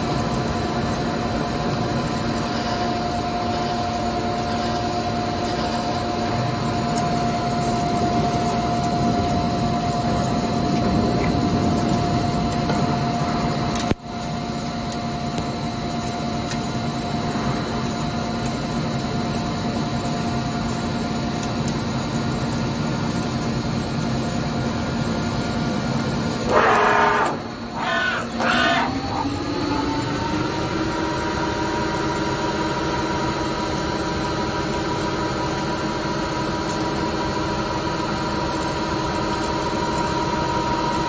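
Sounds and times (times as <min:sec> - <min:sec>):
coolant spray hiss: 0:00.0 - 0:30.1
lathe cutting with high whine: 0:26.5 - 0:32.4.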